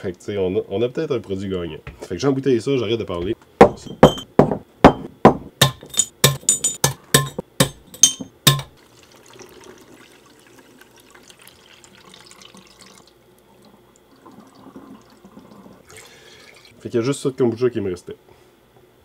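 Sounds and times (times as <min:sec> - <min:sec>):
glassy clinks and knocks: 0:03.8 - 0:04.3, 0:04.9 - 0:08.7
liquid trickling: 0:08.7 - 0:16.8.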